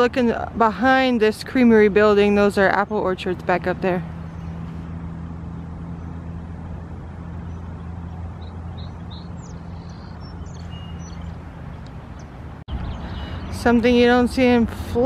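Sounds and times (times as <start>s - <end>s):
engine hum: 0.0s - 15.0s
high bird chirps: 7.4s - 13.6s.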